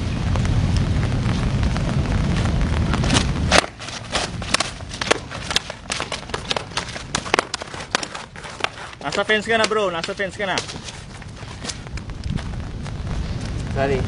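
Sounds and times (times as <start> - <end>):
wind buffeting microphone: 0.0 - 14.0
sticks clacking: 3.1 - 11.8.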